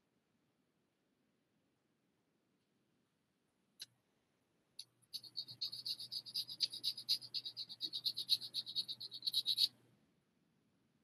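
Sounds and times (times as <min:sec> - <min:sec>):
sandpaper rubbing: 0:05.2 - 0:09.7.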